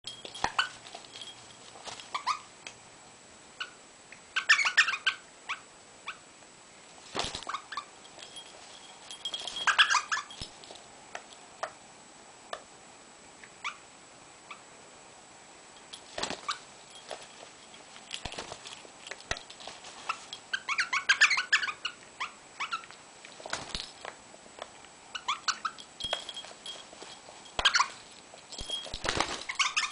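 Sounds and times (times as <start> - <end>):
bird clicks and rustles on carpet: 0.1 - 2.4, 7.0 - 11.4, 15.8 - 21.6, 22.7 - 29.9
bird squeaky chatter: 4.4 - 5.2, 9.6 - 10.4, 20.1 - 22.9, 27.6 - 28.0, 29.4 - 29.9.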